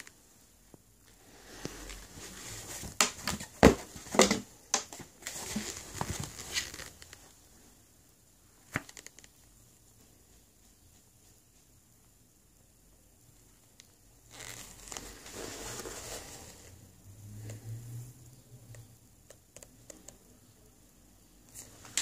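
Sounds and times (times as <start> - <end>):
sneakers being handled: 1.5 - 7.2.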